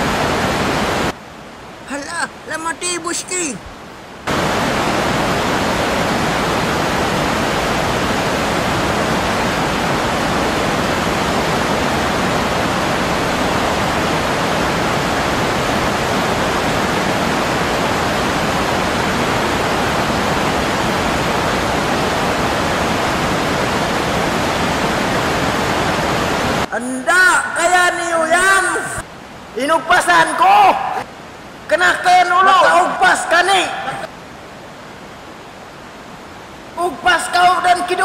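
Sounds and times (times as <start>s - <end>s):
rushing river rapids and waterfall: 0.0s - 38.0s.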